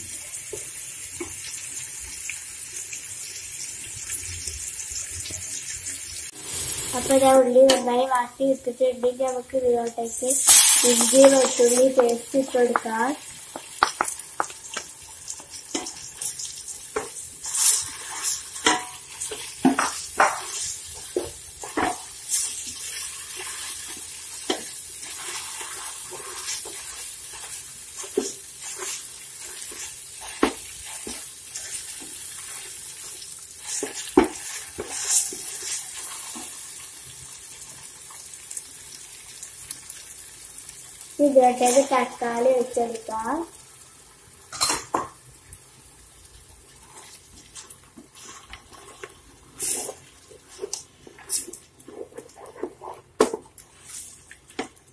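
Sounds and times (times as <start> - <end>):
onions sizzling in hot oil: 0.0 - 54.9
spatula scraping a pot: 15.7 - 32.7, 33.6 - 36.5, 48.2 - 54.2.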